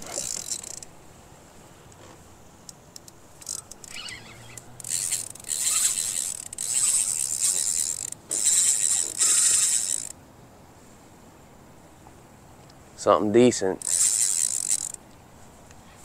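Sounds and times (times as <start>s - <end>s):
fishing reel gears whirring: 0.0s - 0.9s, 3.0s - 10.2s, 13.8s - 15.0s
faint reel clicks: 1.9s - 10.2s, 13.8s - 15.0s.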